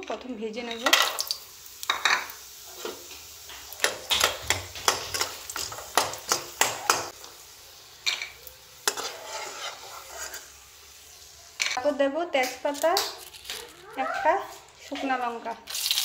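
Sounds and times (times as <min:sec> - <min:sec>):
dumplings sizzling in oil: 0:00.2 - 0:14.9, 0:15.6 - 0:16.0
spoon clinking and scraping pan: 0:00.6 - 0:07.2, 0:08.0 - 0:10.6, 0:11.5 - 0:11.8.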